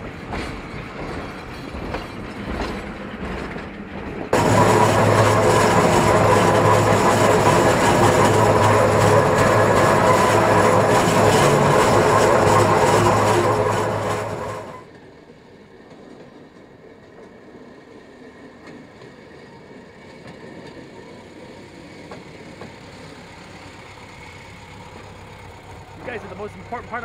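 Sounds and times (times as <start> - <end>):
rail motorcar hum: 0.0 - 27.0
steam locomotive running on rails: 0.0 - 27.0.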